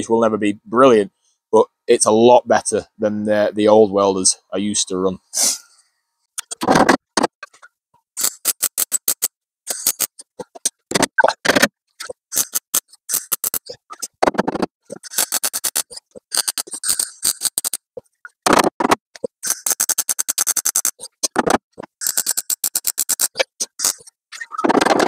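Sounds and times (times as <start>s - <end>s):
welding arc crackling: 8.2s - 14.1s, 14.9s - 18.6s, 19.2s - 24.1s.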